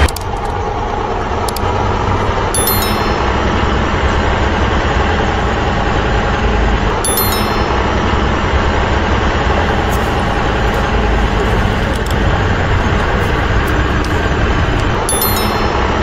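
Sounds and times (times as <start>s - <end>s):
heavy truck engine running: 0.0s - 16.0s
high chime: 2.5s - 3.9s, 7.0s - 8.0s, 15.1s - 16.0s.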